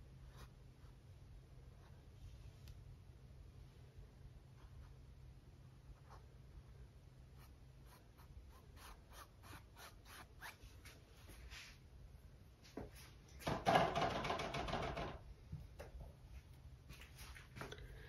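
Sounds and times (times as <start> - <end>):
paintbrush strokes on canvas: 7.4 - 11.8.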